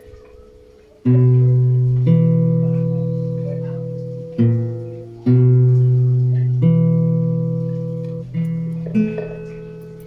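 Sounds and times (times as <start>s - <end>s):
plucked string notes: 0.0s - 10.0s.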